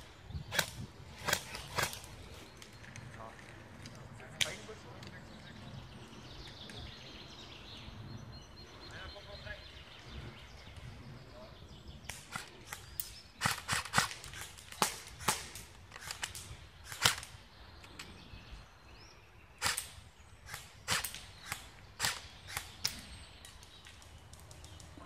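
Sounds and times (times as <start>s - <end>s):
airsoft gun shots: 19.6s - 23.0s.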